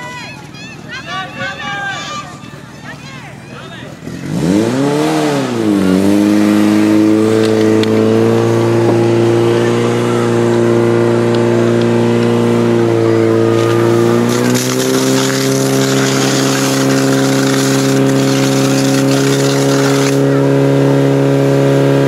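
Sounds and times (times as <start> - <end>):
pump engine running hard: 2.5 - 22.0
water jets spraying: 6.2 - 20.8.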